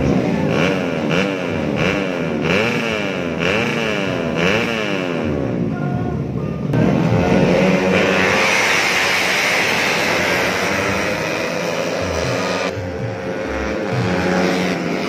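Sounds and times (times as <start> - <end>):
motorcycles revving and accelerating: 0.0 - 15.0.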